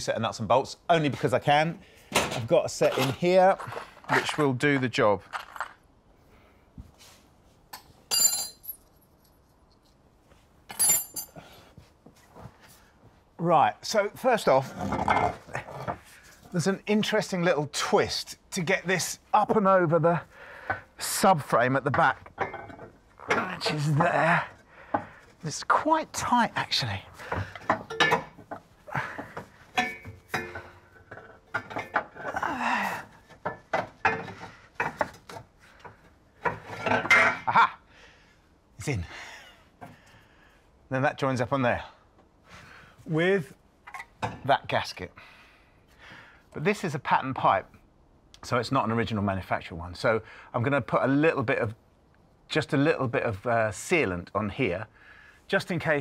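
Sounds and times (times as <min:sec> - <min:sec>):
metal tools clinking on concrete: 0:07.8 - 0:10.0, 0:10.7 - 0:11.5, 0:22.0 - 0:24.0, 0:27.3 - 0:32.3.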